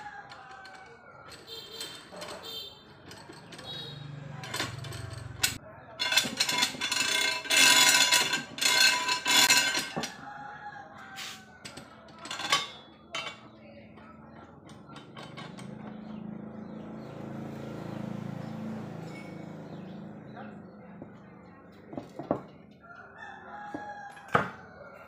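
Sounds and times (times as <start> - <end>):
metal clamp clinking and knocking: 0.3 - 10.2, 11.6 - 13.5, 14.4 - 16.0.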